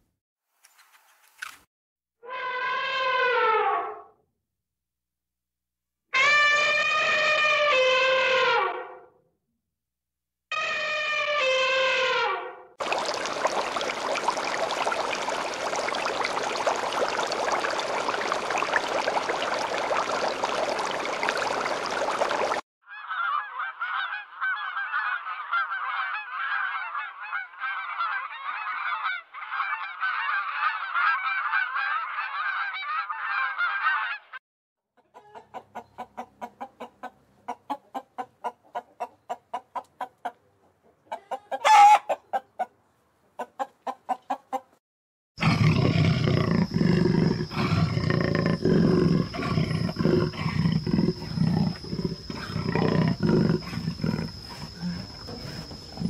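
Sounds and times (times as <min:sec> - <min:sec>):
fowl calling: 0:12.8 - 0:34.3, 0:41.1 - 0:42.5
low rough animal sound: 0:45.4 - 0:56.0.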